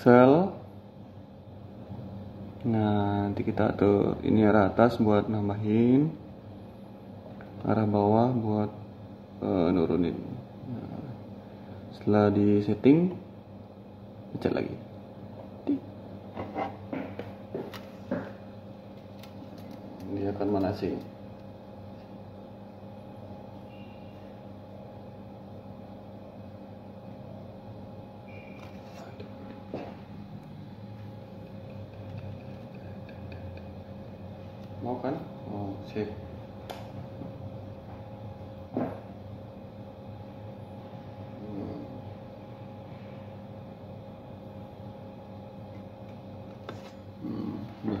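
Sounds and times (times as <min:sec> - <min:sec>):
espresso machine electrical hum: 0:00.0 - 0:48.0.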